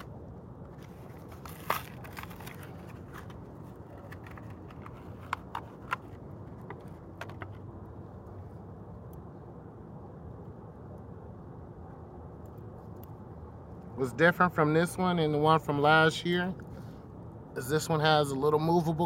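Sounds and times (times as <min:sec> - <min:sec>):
plastic blister pack crinkling: 0:00.9 - 0:06.1.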